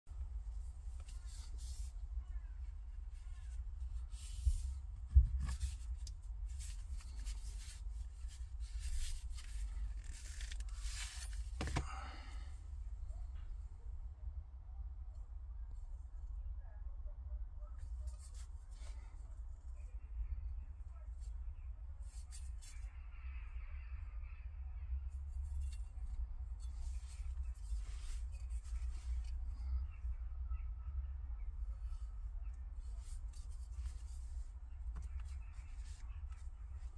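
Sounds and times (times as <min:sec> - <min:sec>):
faint handling rustle: 0:00.1 - 0:13.6, 0:17.8 - 0:20.0, 0:22.0 - 0:23.0, 0:25.2 - 0:30.1, 0:31.5 - 0:36.9
low steady rumble: 0:00.1 - 0:36.9
leather sheath rubbing and scraping: 0:00.4 - 0:02.2, 0:02.9 - 0:11.9, 0:25.4 - 0:29.7, 0:32.8 - 0:36.9.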